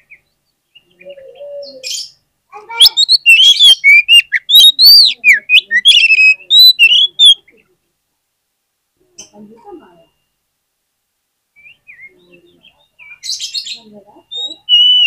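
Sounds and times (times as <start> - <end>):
bird singing whistled notes: 2.8 - 7.5, 11.6 - 15.0.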